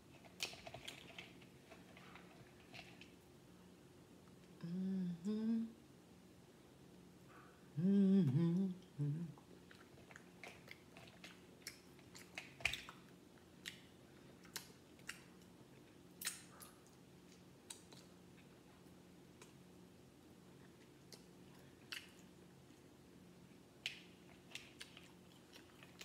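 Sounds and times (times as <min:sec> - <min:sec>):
chewing: 0:00.2 - 0:03.2, 0:09.4 - 0:19.6, 0:20.6 - 0:22.9, 0:23.8 - 0:26.0
woman humming: 0:04.6 - 0:05.8, 0:07.7 - 0:09.4.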